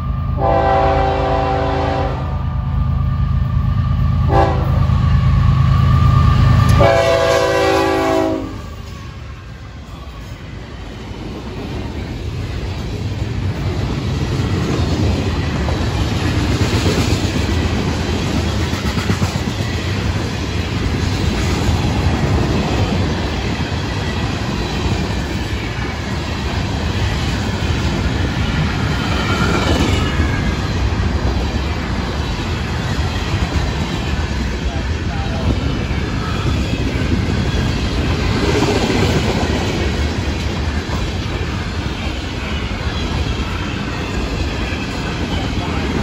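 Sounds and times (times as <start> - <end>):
freight train wheels rumbling and clattering: 0.0 - 46.0.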